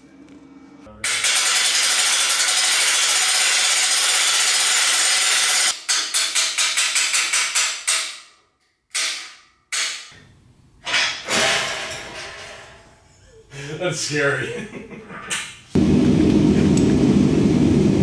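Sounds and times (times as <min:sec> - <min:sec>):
winch ratchet clattering: 0:01.1 - 0:05.7
metal knocks and scrapes: 0:10.8 - 0:13.1.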